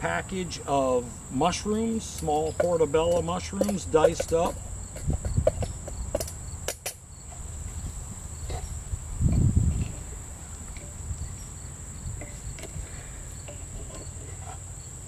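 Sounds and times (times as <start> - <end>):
insects droning: 0.0 - 15.0
wooden spoon stirring in pot: 2.0 - 6.0
light clinks: 2.2 - 7.0.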